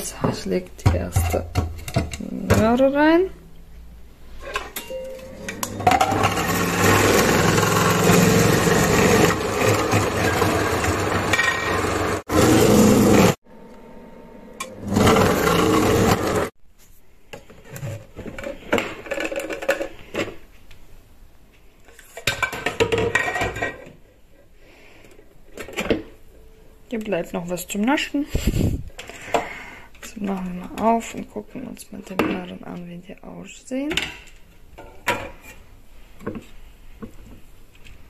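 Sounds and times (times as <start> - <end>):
food processor grinding: 5.5 - 13.4, 14.6 - 16.5
plastic parts knocking and clattering: 17.4 - 20.4, 22.0 - 24.0.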